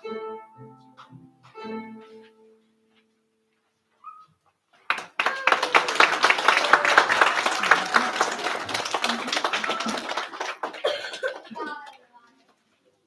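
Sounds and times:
crowd clapping: 0:04.9 - 0:12.0
voices: 0:05.2 - 0:12.4.

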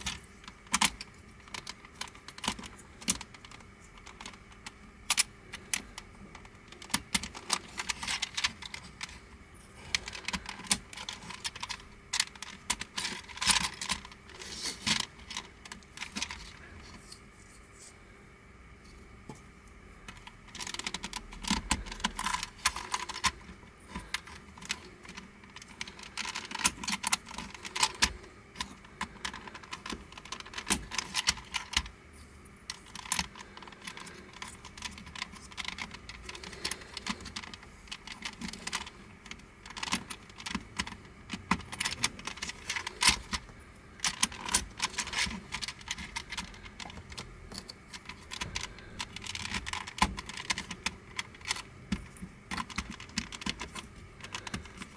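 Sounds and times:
plastic puzzle clicking: 0:09.9 - 0:16.6, 0:20.1 - 0:31.9, 0:32.7 - 0:54.9.

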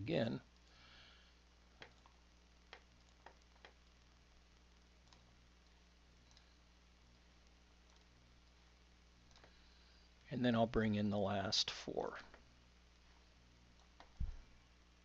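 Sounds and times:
computer mouse clicks: 0:01.8 - 0:03.8, 0:05.0 - 0:06.5, 0:07.4 - 0:08.6, 0:09.3 - 0:09.6.

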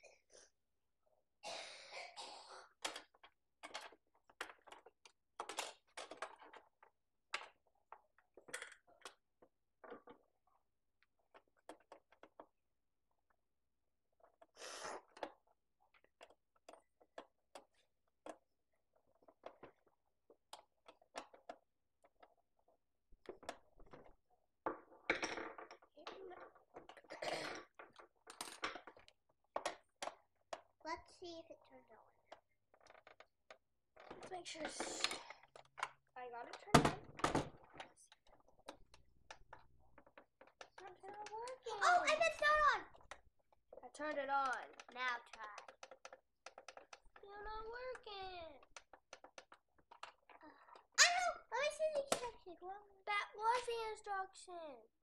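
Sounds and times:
plastic toy parts clicking: 0:02.8 - 0:10.3, 0:14.2 - 0:22.4, 0:23.2 - 0:30.8, 0:32.3 - 0:51.0.

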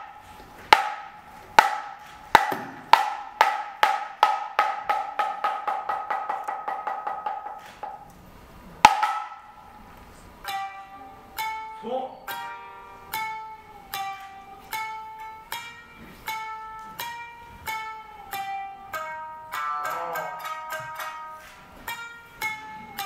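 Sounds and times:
wooden clappers clacking: 0:00.0 - 0:08.1
plucked shamisen notes: 0:00.0 - 0:23.0.

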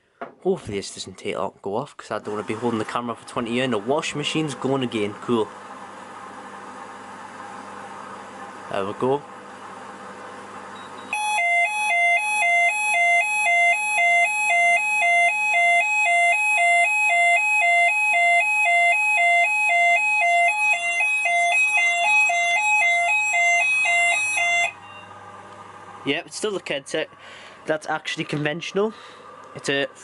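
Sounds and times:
two-tone fire alarm: 0:11.1 - 0:25.1.

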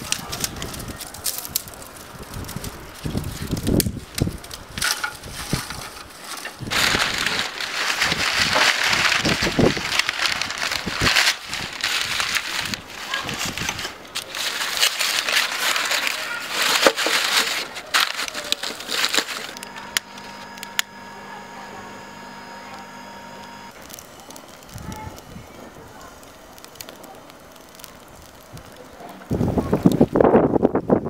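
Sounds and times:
twigs snapping: 0:00.0 - 0:21.1, 0:23.5 - 0:25.3
vine cuttings and paper rustling: 0:00.0 - 0:30.2.

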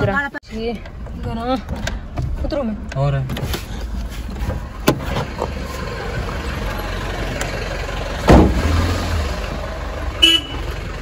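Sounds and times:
car engine idling: 0:00.6 - 0:11.0
loud thump: 0:08.2 - 0:08.7.

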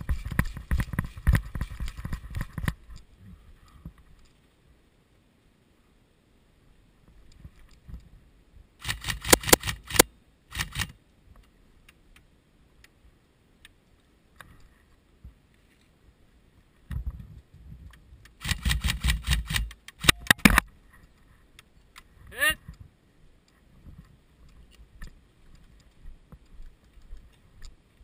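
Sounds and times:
gear rustling and knocking: 0:00.0 - 0:03.0
airsoft rifle firing bursts: 0:08.8 - 0:10.9.

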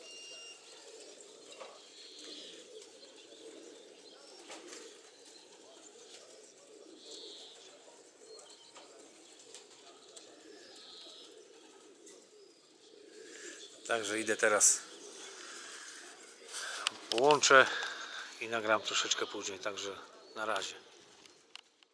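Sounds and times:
pigeons cooing: 0:00.0 - 0:21.5.

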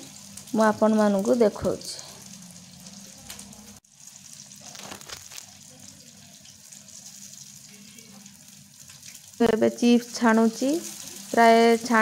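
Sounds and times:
chips sizzling in hot oil: 0:00.0 - 0:12.0.

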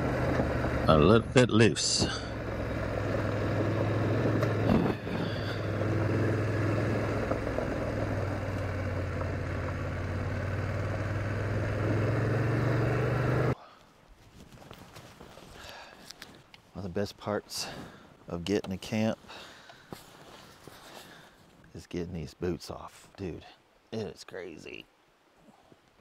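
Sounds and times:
motorcycle engine running: 0:00.0 - 0:13.6.

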